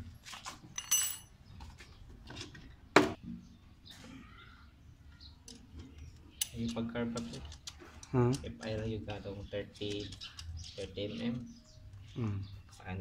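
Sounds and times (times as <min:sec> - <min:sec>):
metal tools clinking: 0:00.7 - 0:01.4.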